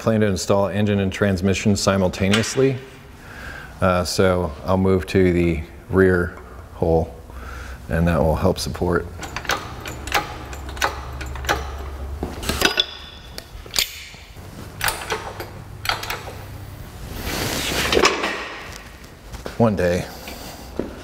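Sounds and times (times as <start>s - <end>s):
metal knocks: 9.1s - 14.2s
hoist pump handle clicks: 9.2s - 14.1s, 14.8s - 16.4s.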